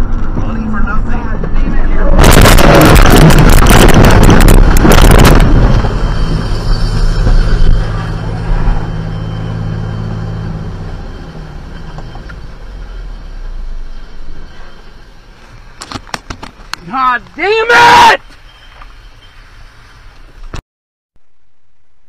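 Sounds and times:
car crashing and scraping: 0:00.0 - 0:09.7.

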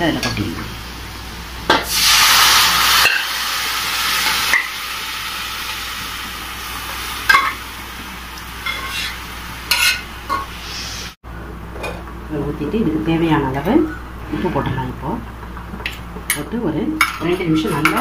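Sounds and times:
meat sizzling in a frying pan: 0:00.7 - 0:11.1.

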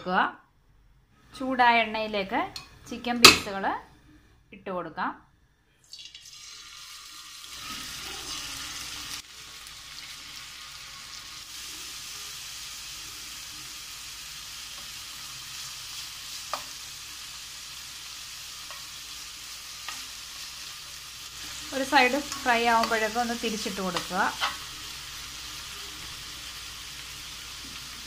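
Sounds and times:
chicken sizzling in hot oil: 0:05.8 - 0:28.0.

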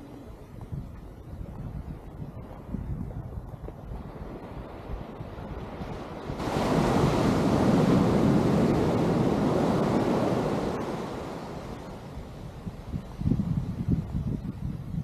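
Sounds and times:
wind rumble on microphone: 0:00.0 - 0:15.0
wave breaking: 0:04.0 - 0:14.1.

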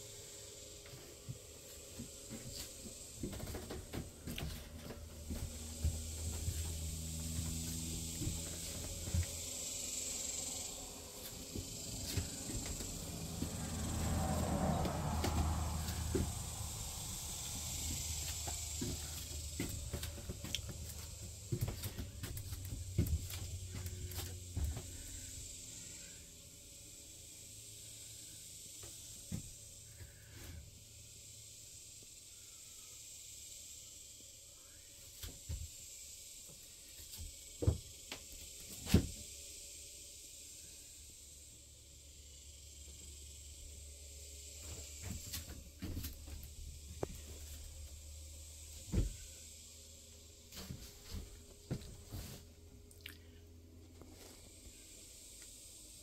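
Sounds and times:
low hum: 0:00.0 - 0:28.4
steady hiss: 0:00.0 - 0:56.0
footsteps: 0:00.8 - 0:09.5, 0:11.1 - 0:25.1, 0:50.5 - 0:52.5.

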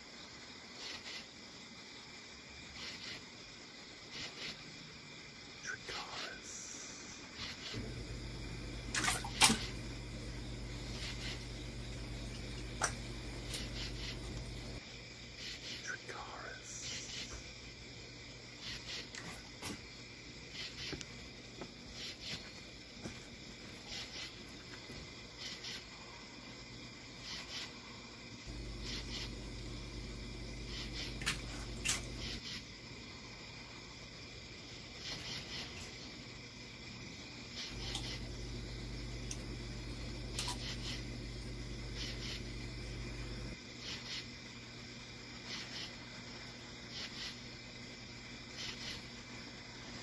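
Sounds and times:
steady low hum: 0:04.8 - 0:50.0
soft hissing: 0:05.3 - 0:21.2, 0:25.3 - 0:34.3
water splashing: 0:08.9 - 0:09.9.

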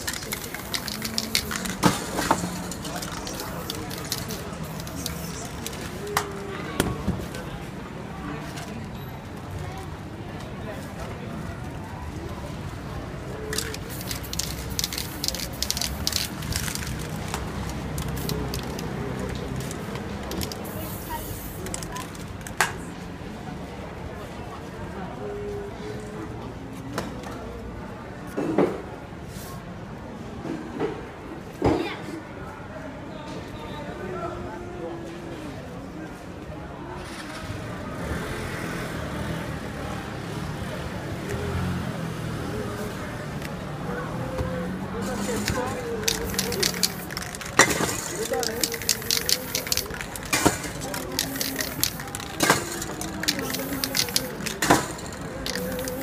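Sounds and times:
spray-paint can hissing: 0:00.0 - 0:05.9, 0:13.5 - 0:22.1, 0:45.1 - 0:56.0
motor vehicle rumble: 0:00.0 - 0:23.4, 0:37.1 - 0:56.0
faint voices: 0:00.0 - 0:56.0.

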